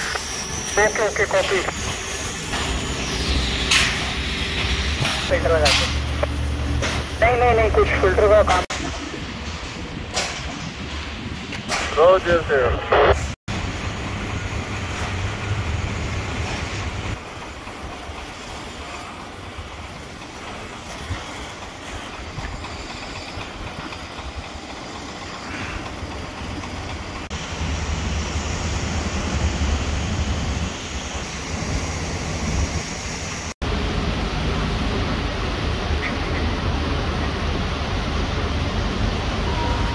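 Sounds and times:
shipyard background noise: 0:00.0 - 0:39.9.

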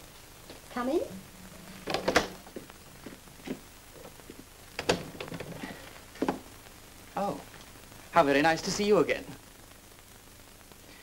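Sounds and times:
low film soundtrack hum: 0:00.0 - 0:10.8
man's footsteps: 0:01.5 - 0:06.5
door opening: 0:01.6 - 0:02.6, 0:04.8 - 0:06.4.

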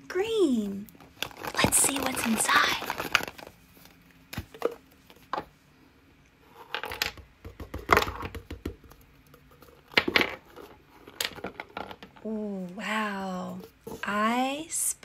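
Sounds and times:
crinkling rustles: 0:00.7 - 0:05.4.

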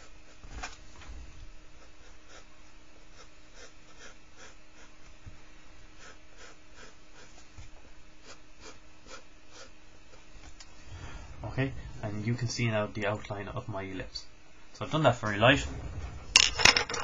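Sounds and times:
pencil scratching on paper: 0:03.1 - 0:05.0.

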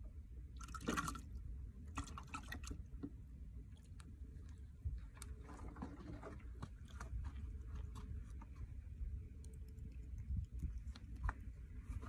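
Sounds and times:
low uneven rumble: 0:00.0 - 0:12.0
small clicks and crackles: 0:09.3 - 0:12.0.

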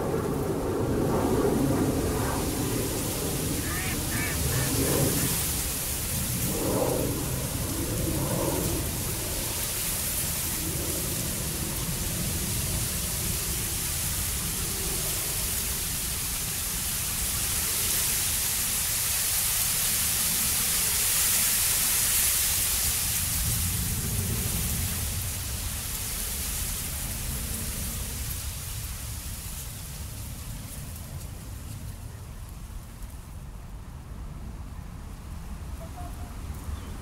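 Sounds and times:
even hiss: 0:01.5 - 0:31.8.

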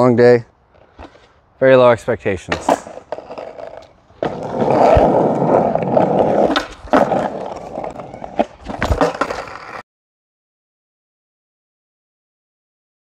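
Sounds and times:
skateboard wheels rolling on asphalt: 0:00.1 - 0:09.8
skateboard clacking on pavement: 0:02.5 - 0:09.8.

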